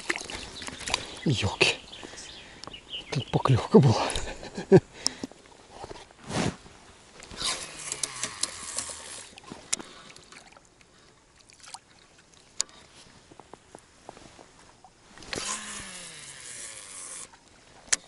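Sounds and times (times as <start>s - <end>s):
water lapping around boat: 0.0s - 3.0s, 4.0s - 18.0s
fishing reel and rod handling: 7.2s - 10.0s, 15.2s - 18.0s
sharp clicks: 7.8s - 9.1s.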